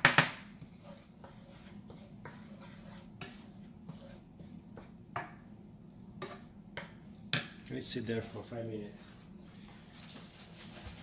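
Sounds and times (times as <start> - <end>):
utensils stirring thick sauce: 0.4 - 7.8
steady low hum: 0.4 - 10.8.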